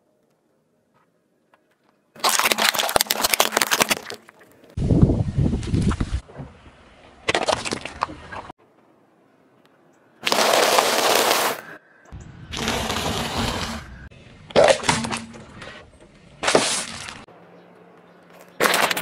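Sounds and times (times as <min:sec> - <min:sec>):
tyre crushing crunchy food: 0:02.2 - 0:04.3.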